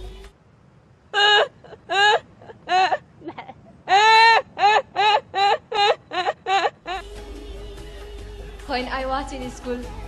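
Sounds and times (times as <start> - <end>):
woman laughing hard: 3.9 - 7.1.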